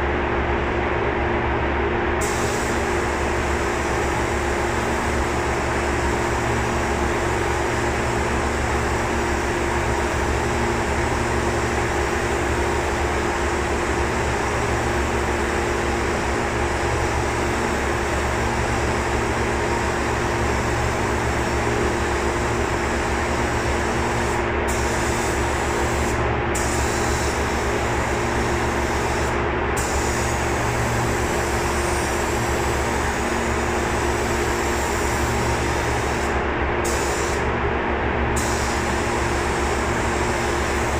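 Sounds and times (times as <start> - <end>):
low fan hum: 0.0 - 40.9
paint spray gun hissing: 2.2 - 5.4, 20.6 - 33.3, 34.2 - 37.4, 38.4 - 40.9.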